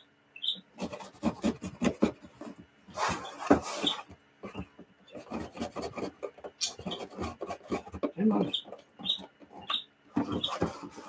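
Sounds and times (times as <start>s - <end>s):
knife cutting cardboard: 0.8s - 8.4s, 10.1s - 11.0s.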